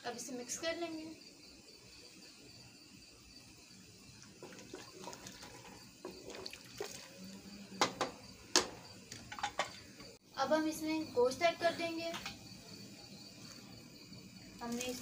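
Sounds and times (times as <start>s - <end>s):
liquid swishing: 4.2s - 7.5s.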